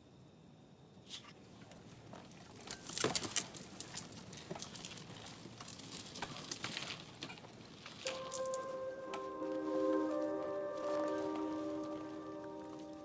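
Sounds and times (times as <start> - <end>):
faint clicks and crackles: 1.3 - 13.0
low hiss: 7.1 - 13.0.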